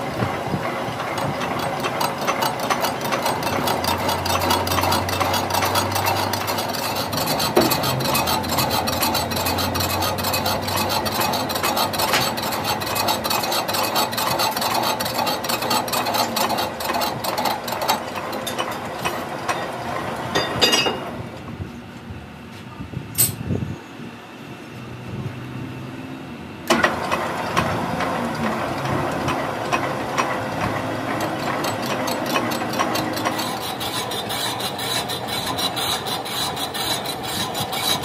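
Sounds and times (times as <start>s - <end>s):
low machine hum: 0.0s - 38.0s
rapid chatter of tool cutting metal: 0.6s - 19.7s, 28.0s - 38.0s.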